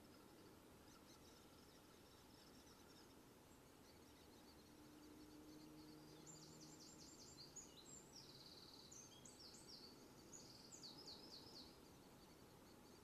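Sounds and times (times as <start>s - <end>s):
songbird singing faintly: 0.0s - 13.0s.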